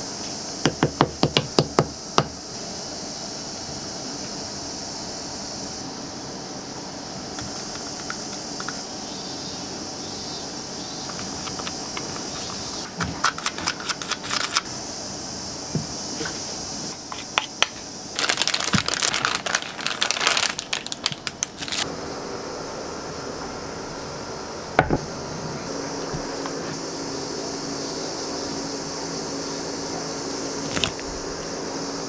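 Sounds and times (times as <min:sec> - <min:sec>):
steady hiss: 0:00.0 - 0:32.0
plastic piping bag crinkling: 0:17.2 - 0:21.8.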